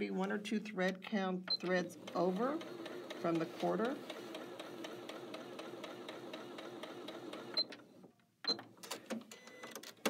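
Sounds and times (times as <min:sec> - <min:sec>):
sewing machine stitching: 0:01.5 - 0:07.8.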